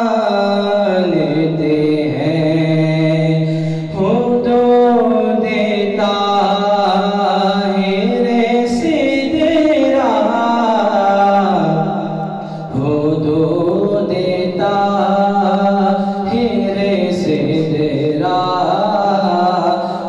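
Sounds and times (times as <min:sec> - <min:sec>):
men singing unaccompanied: 0:12.7 - 0:20.0.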